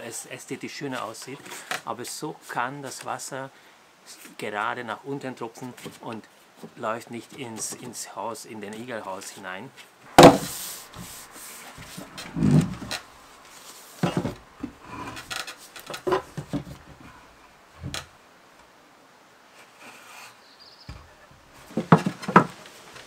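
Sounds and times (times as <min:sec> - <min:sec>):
wooden roof knocking: 0:10.2 - 0:10.6, 0:21.7 - 0:22.6
plastic sheeting rubbing: 0:10.2 - 0:14.4.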